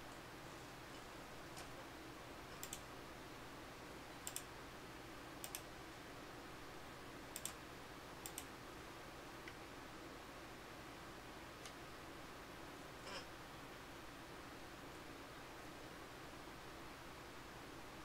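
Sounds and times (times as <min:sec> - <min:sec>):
computer mouse clicking: 0:02.6 - 0:02.9, 0:04.2 - 0:04.5, 0:05.4 - 0:05.7, 0:07.3 - 0:07.6, 0:08.2 - 0:08.5.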